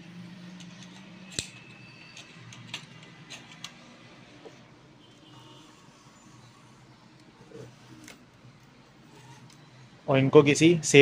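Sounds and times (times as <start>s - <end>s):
faint high squeak: 9.0s - 9.8s.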